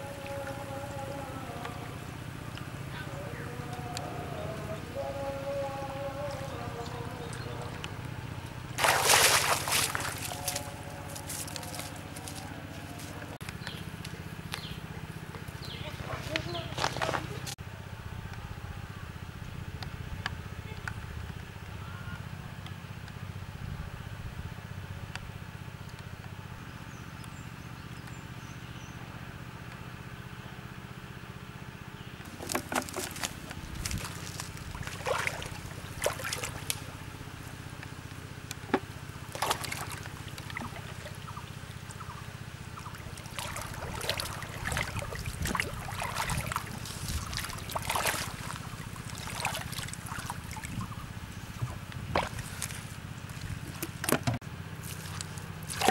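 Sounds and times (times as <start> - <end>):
steady low drone: 0.0 - 15.1
pond water splashing: 3.5 - 17.6, 32.2 - 55.9.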